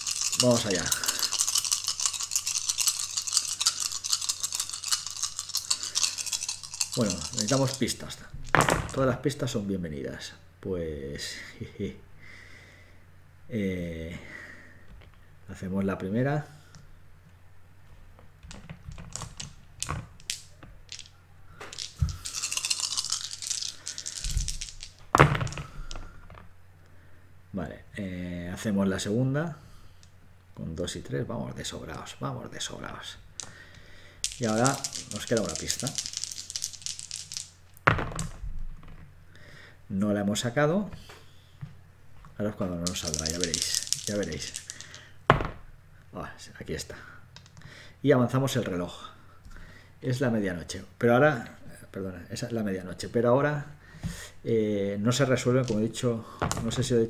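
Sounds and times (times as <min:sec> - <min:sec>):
dice shaken in hands: 0:00.0 - 0:09.1, 0:18.4 - 0:26.4, 0:33.4 - 0:38.4, 0:42.6 - 0:45.6, 0:55.1 - 0:57.0.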